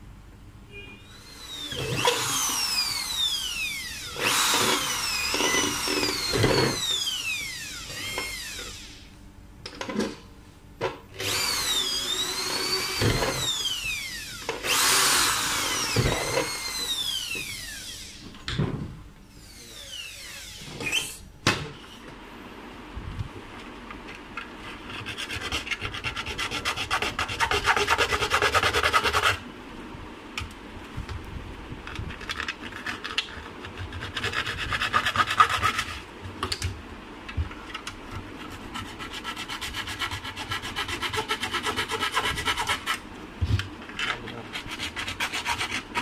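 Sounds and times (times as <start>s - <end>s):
file rasping on plastic: 24.7s - 29.4s, 32.2s - 36.0s, 38.4s - 43.0s, 44.1s - 46.0s.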